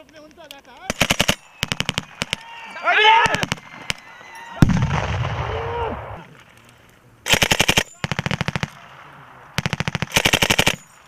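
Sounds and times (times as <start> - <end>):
machine gun automatic fire: 0.9 - 2.3, 7.3 - 8.8, 9.6 - 11.0
bang with low rumble: 4.6 - 6.1.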